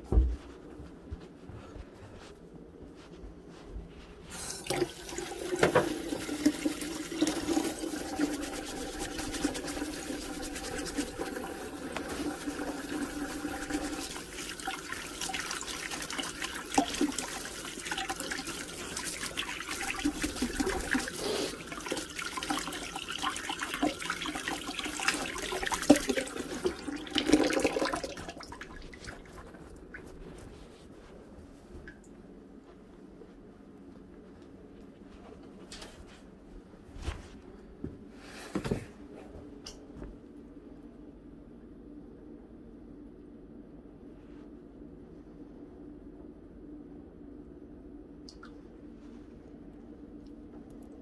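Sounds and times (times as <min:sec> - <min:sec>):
hands washing with splashes: 0:04.3 - 0:30.2
faucet running into sink: 0:04.5 - 0:28.7.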